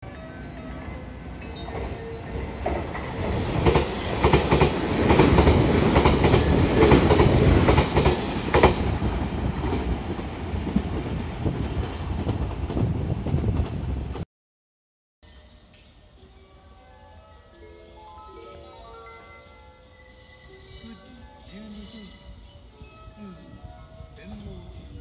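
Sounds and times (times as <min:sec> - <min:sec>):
train passing: 0:00.0 - 0:14.2.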